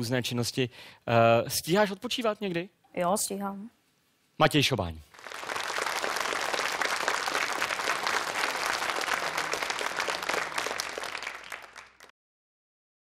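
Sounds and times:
audience applauding: 5.1s - 12.1s.

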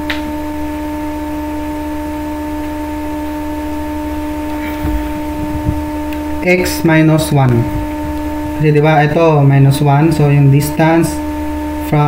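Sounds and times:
electrical hum with buzz: 0.0s - 12.0s
soft low thumps: 4.2s - 9.3s
low rumble: 4.2s - 9.6s.

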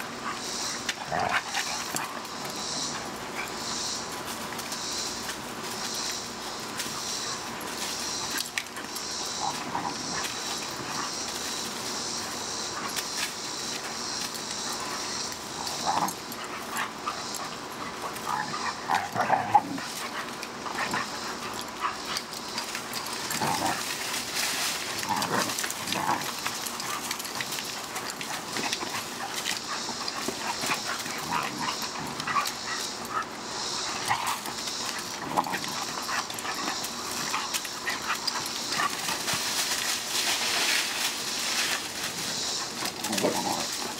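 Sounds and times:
puppies yipping and barking: 0.0s - 43.9s.

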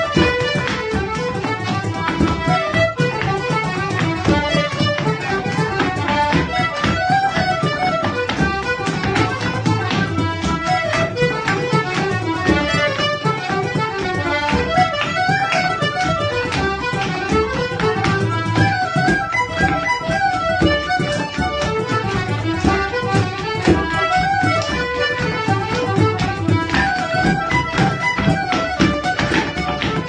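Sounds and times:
button accordion: 0.0s - 30.0s
dancers' steps on wooden floor: 0.0s - 30.0s
fiddle: 0.0s - 30.0s.

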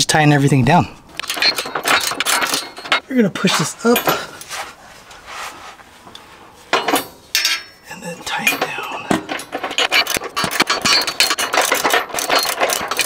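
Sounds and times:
metal clinking and knocking: 1.1s - 4.5s, 6.1s - 13.0s.

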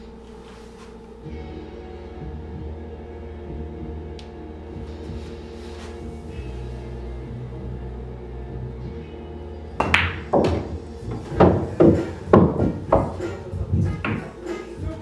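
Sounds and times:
background music: 0.0s - 15.0s
cue striking ball: 9.8s - 13.2s, 14.0s - 14.3s
pool balls clicking and knocking: 9.8s - 14.4s.

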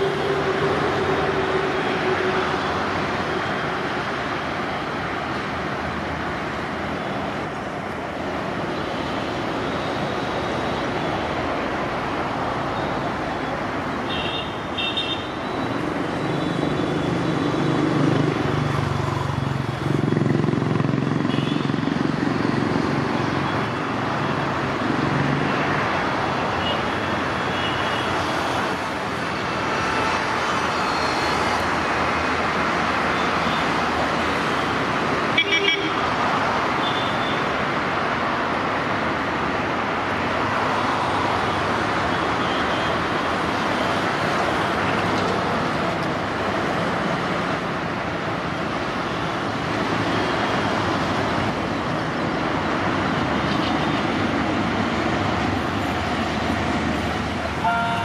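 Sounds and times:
train horn toot: 57.6s - 58.0s.

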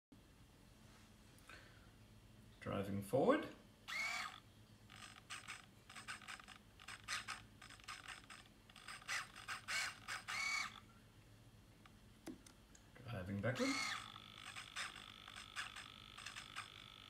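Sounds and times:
servo whirring: 3.9s - 10.8s, 13.4s - 17.0s.

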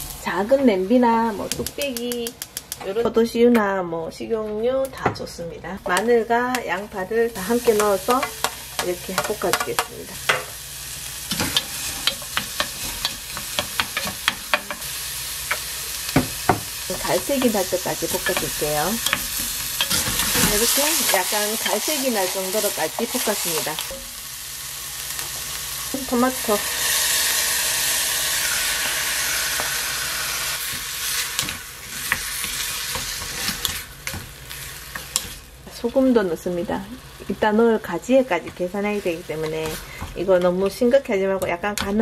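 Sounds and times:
onion sizzling in oil: 0.0s - 2.7s, 5.8s - 41.2s
wooden spoon stirring in pot: 11.5s - 14.8s.

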